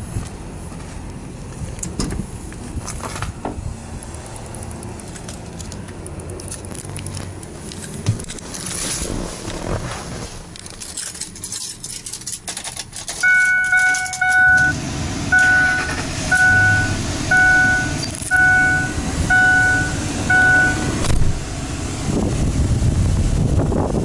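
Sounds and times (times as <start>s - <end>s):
car engine starting and idling: 0.0s - 24.0s
keys jangling: 5.0s - 8.0s, 10.6s - 14.4s
dashboard warning chime: 13.2s - 21.1s.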